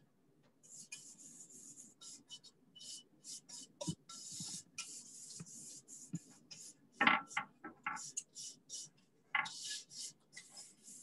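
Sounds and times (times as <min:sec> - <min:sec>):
paintbrush swishing: 0:00.7 - 0:06.8, 0:09.5 - 0:11.0.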